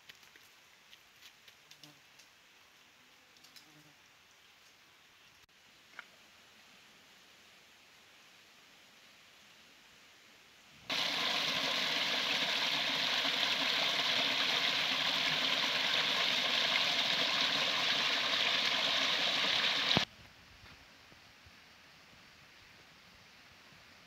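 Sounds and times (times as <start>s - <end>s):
stream splashing over stones: 10.9s - 20.1s.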